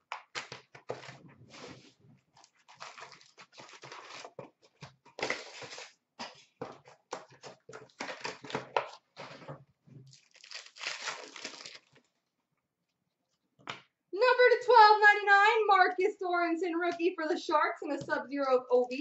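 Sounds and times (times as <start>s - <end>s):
cardboard and wrappers tearing: 2.4s - 6.4s, 10.1s - 12.0s.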